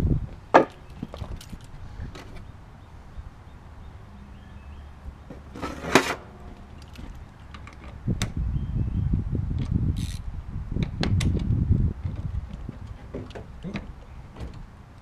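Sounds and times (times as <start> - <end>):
tool rustling scrape: 5.3 - 7.1.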